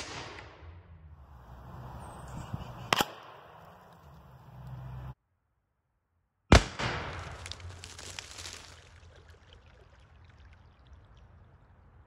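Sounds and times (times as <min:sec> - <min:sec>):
water gushing and splashing: 0:07.8 - 0:11.9.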